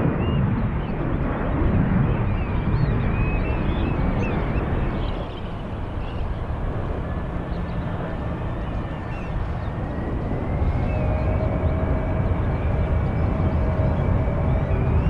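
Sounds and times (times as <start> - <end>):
jet engine whine: 0.0 - 15.0
jet engines rumbling: 0.0 - 15.0
birds calling: 3.2 - 15.0.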